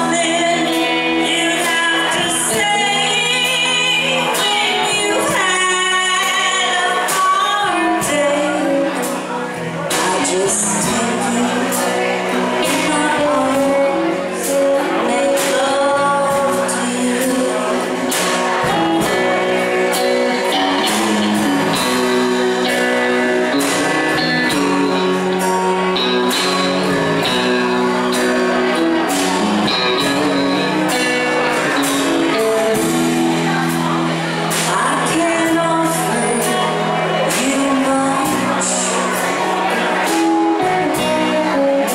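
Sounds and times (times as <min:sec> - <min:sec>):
electric guitar lead: 0:00.0 - 0:41.9
live country band playing: 0:00.0 - 0:41.9.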